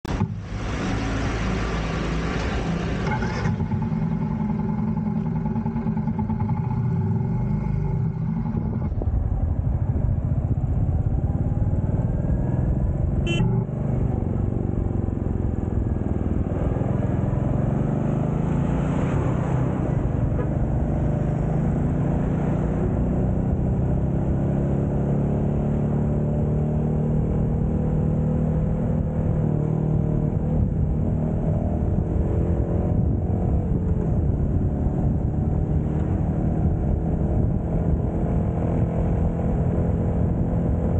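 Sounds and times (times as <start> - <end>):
trucks passing: 0.0 - 23.6
wind and road noise: 0.0 - 40.9
motorcycle engine running: 2.6 - 18.3.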